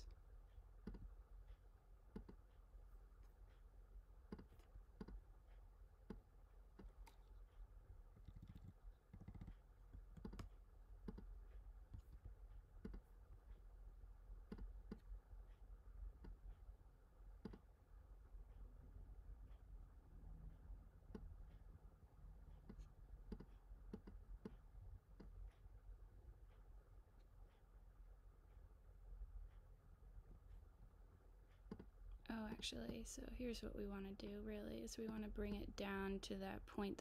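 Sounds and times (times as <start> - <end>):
low room hum: 0.0 - 37.0
mouse and keyboard clicking: 8.2 - 11.3.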